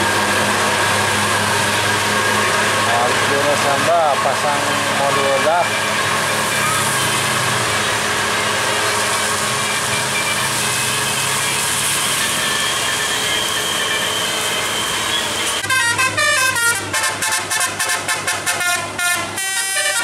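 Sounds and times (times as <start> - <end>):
bus engine and road noise: 0.0 - 20.0
musical air horn tune: 15.6 - 20.0.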